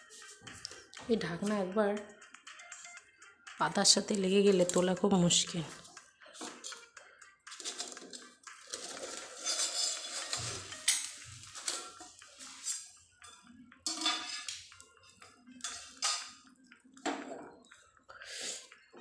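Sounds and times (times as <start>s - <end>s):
metal lid scraping on pot: 7.5s - 12.1s.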